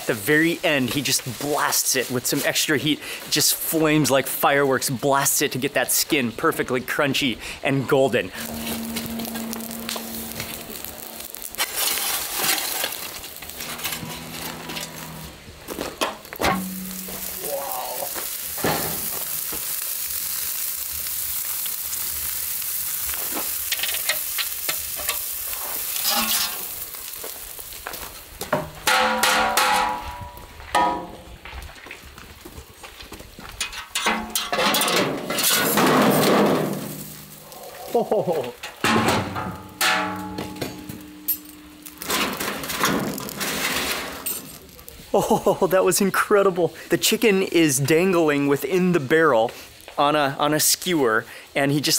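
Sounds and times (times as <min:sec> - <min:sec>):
wood fire crackling: 0:00.0 - 0:51.9
metal clanks ringing: 0:16.0 - 0:17.4, 0:38.8 - 0:43.0
metal tools clattering: 0:26.0 - 0:26.7, 0:33.7 - 0:36.5, 0:39.7 - 0:44.6.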